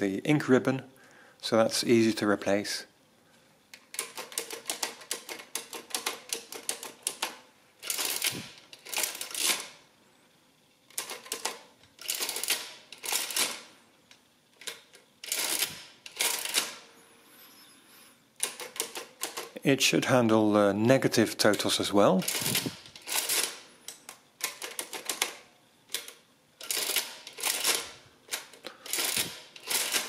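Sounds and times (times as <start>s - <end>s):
adding machine keys clicking: 3.8s - 9.7s, 10.9s - 13.6s, 18.4s - 19.6s, 21.4s - 30.0s
adding machine mechanism clattering: 3.8s - 9.8s, 10.9s - 13.7s, 14.6s - 16.9s, 18.4s - 19.6s, 21.4s - 23.7s, 24.4s - 30.0s.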